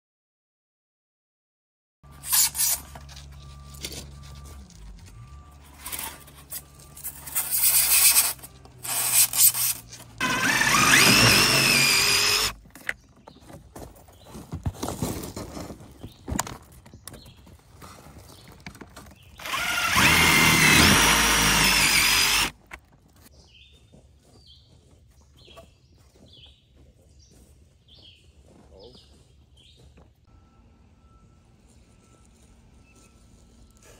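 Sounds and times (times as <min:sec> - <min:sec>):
power drill whining: 0:07.4 - 0:12.6, 0:19.4 - 0:22.5.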